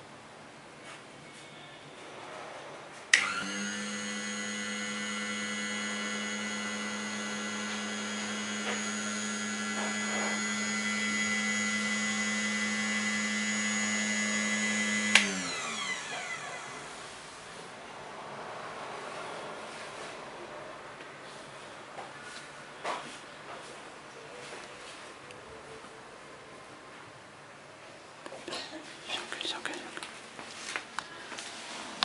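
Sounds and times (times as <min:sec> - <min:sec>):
grinder motor whining: 0:03.2 - 0:17.1.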